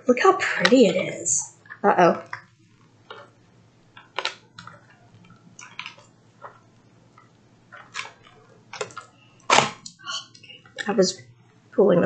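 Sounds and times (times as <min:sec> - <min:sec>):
acrylic pieces clicking and rustling: 0:01.6 - 0:09.1.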